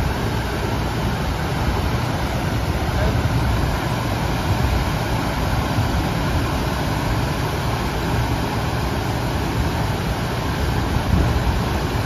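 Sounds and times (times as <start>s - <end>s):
rushing water: 0.0s - 12.0s
wind rumbling on microphone: 9.5s - 12.0s.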